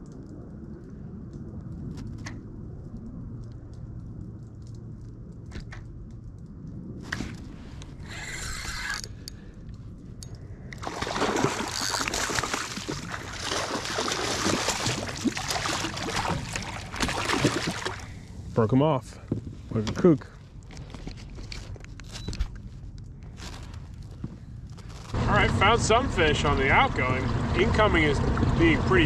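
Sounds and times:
water splashing around kayak: 10.7s - 18.4s.

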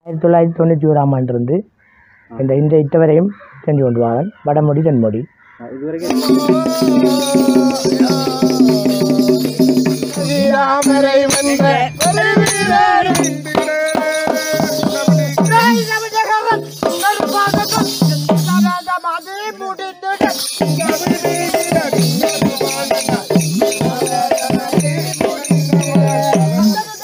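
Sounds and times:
sharp drum beats: 6.0s - 19.0s, 20.2s - 27.0s
jingling percussion: 6.0s - 27.0s
person singing a bending melody: 6.0s - 27.0s.

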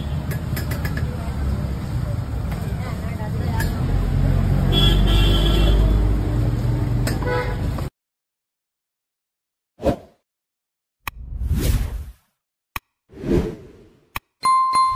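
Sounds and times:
traffic rumble: 0.0s - 7.9s
vehicle horn: 4.7s - 6.1s, 7.2s - 7.7s.

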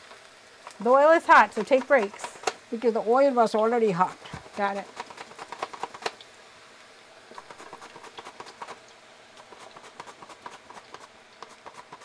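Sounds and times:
crackling pops of frying oil: 0.0s - 2.7s, 4.3s - 6.4s
slices deep-frying in hot oil: 0.0s - 12.0s.

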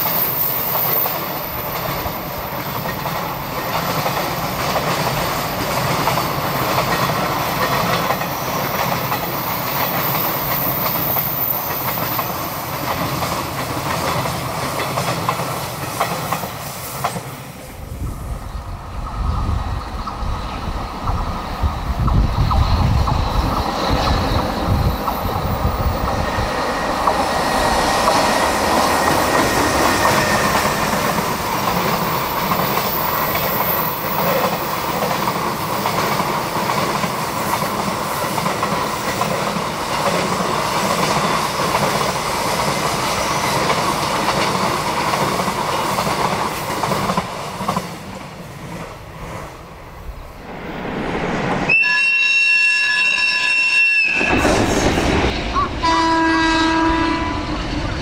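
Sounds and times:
train wheels clattering over rail joints: 0.6s - 17.3s, 28.0s - 48.2s.

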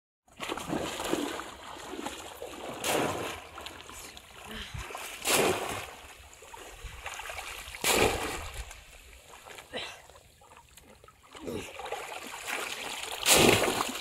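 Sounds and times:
water sloshing from wading: 0.3s - 14.0s
fish trap splashing into water: 2.5s - 3.6s, 5.2s - 6.0s, 7.2s - 8.7s, 11.8s - 14.0s.

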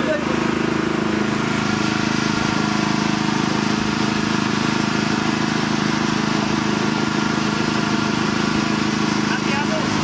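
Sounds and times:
boat engine running: 0.0s - 10.0s.

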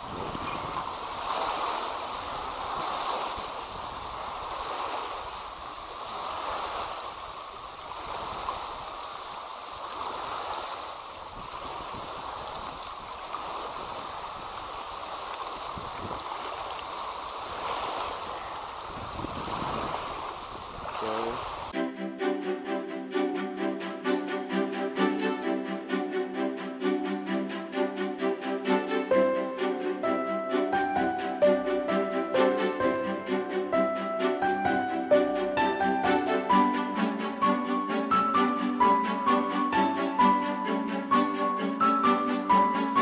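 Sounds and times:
wind gusting on microphone: 0.0s - 21.8s.

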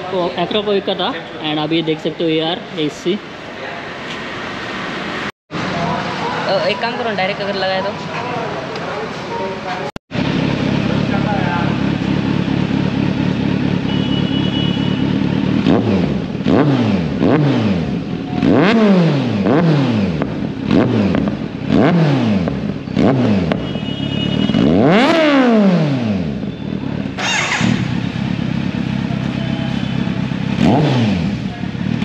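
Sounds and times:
motorcycle engine idling and revving: 0.0s - 3.5s, 10.1s - 32.0s.

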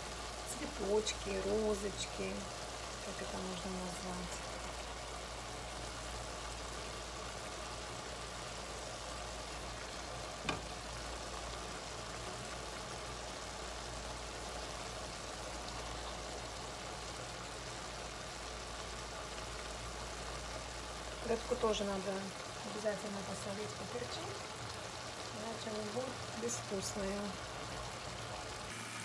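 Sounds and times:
vegetables sizzling in a frying pan: 0.0s - 29.0s.

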